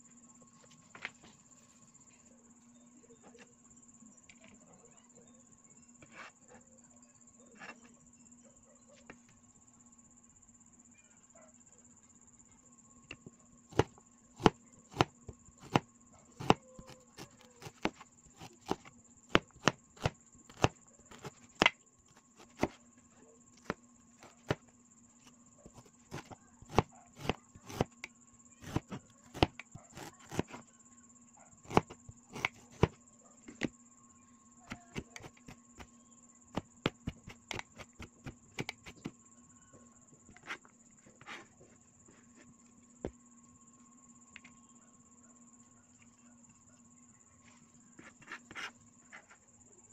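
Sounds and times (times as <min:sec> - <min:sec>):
knife chopping on cutting board: 0:13.7 - 0:15.8, 0:16.4 - 0:21.7, 0:22.4 - 0:22.8, 0:25.7 - 0:30.6, 0:31.7 - 0:33.0.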